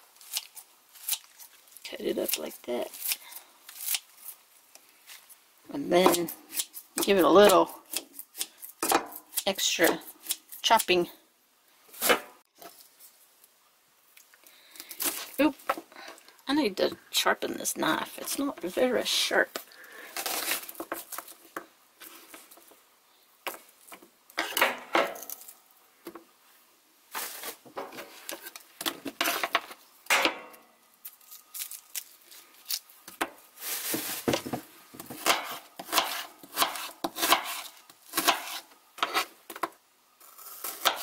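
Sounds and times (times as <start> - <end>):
onion pieces rustling: 20.0 - 22.7, 27.1 - 29.9, 31.0 - 39.4.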